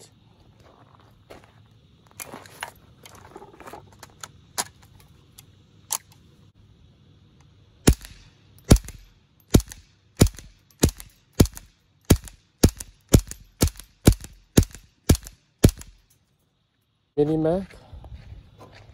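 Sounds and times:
rifle shots: 7.8s - 16.0s.

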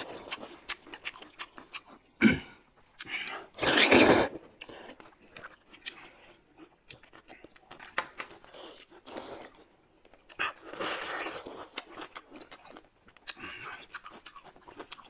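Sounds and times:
wet chewing: 0.0s - 15.0s
slurping noodles: 3.6s - 4.9s.

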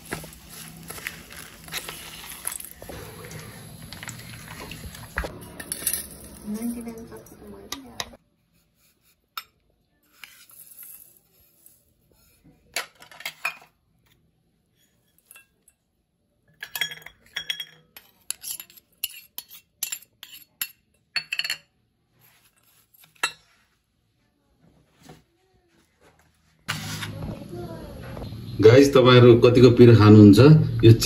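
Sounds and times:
metal spoon clinking on steel bowl: 16.6s - 21.7s.

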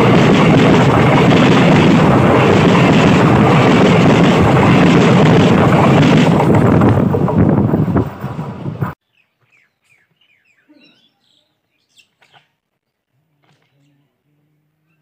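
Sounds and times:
train passing overhead: 0.0s - 9.0s
wind on microphone: 0.0s - 9.0s.

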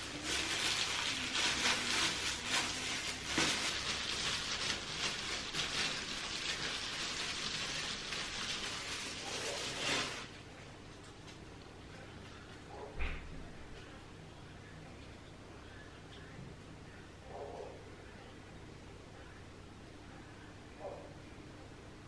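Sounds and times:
plastic gloves crinkling: 0.0s - 11.0s.

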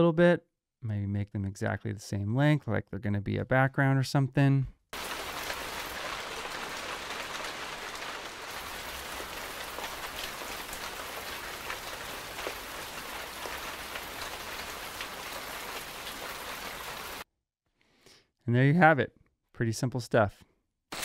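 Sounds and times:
light rain on plants: 5.0s - 17.2s
rain drop ticks: 5.0s - 17.2s.

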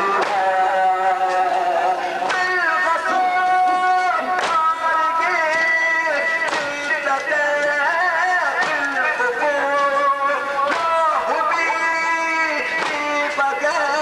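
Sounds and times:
man chanting into microphone: 0.0s - 14.0s
chest-beating slaps: 2.2s - 2.6s, 4.4s - 4.8s, 6.4s - 7.8s, 8.5s - 9.9s, 10.6s - 11.0s, 12.7s - 13.4s.

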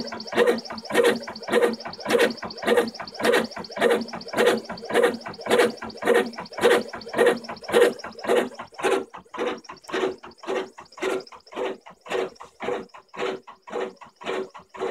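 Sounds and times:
stepper motors whirring: 0.0s - 14.9s.

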